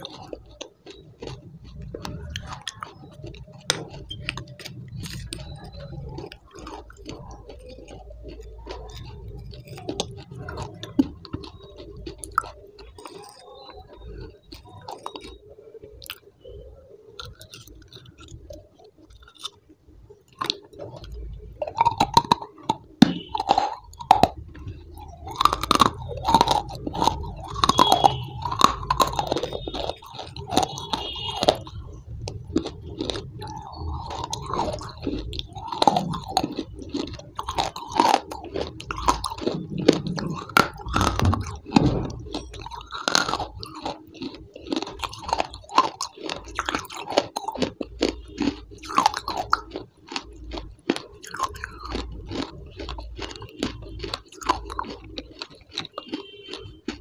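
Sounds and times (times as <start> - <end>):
person chewing and crunching: 0.0 - 57.0
spoon scraping against a glass: 25.8 - 31.8.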